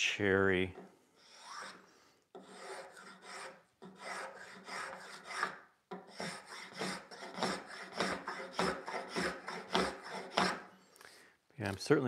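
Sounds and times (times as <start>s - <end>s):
spokeshave cutting wood: 1.2s - 1.8s, 2.4s - 10.7s.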